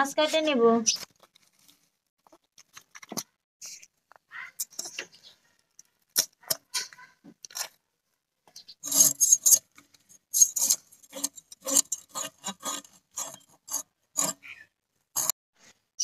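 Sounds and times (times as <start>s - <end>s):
knife scraping fish scales: 8.8s - 14.6s, 15.2s - 15.4s.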